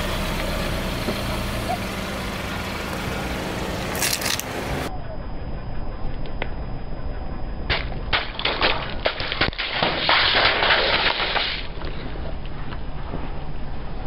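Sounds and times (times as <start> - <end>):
low car rumble: 0.0 - 9.0.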